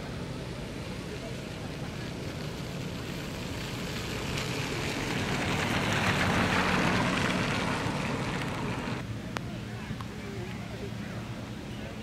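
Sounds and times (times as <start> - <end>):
tyres hissing on wet road: 0.0 - 9.0.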